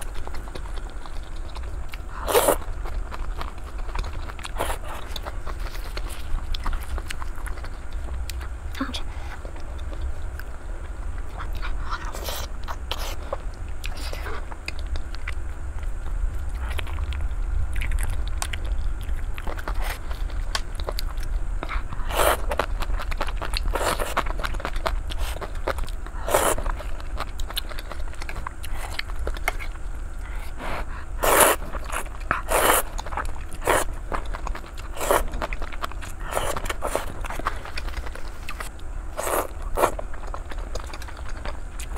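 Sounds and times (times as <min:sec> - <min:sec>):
noodles being chewed: 0:00.0 - 0:41.9
steady low hum: 0:00.0 - 0:41.9
loud slurps: 0:30.7 - 0:33.0, 0:35.0 - 0:35.3.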